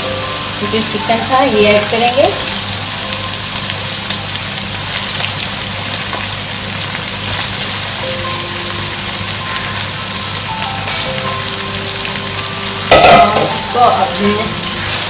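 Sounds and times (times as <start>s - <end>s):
chicken sizzling in hot oil: 0.0s - 15.0s.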